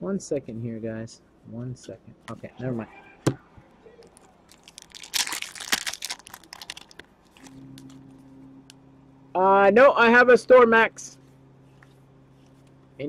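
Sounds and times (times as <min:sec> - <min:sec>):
low steady hum: 0:00.0 - 0:13.0
wrapper crinkling and tearing: 0:04.0 - 0:08.0.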